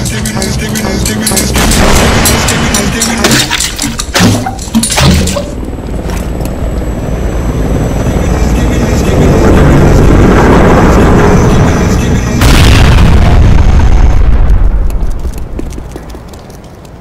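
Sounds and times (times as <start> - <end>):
helicopter rotor and engine roar: 0.0 - 12.7.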